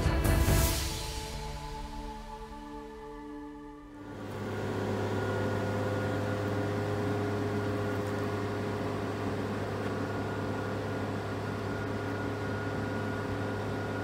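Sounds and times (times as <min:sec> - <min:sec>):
engine and hydraulic winches humming: 0:00.0 - 0:14.0.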